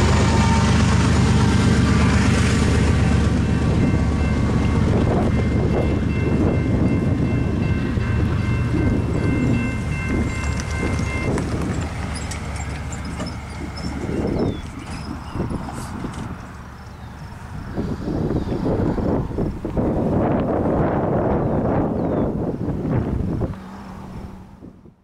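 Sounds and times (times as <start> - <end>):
freight train rumble: 0.0 - 25.0
railroad crossing bell ringing: 2.7 - 17.5.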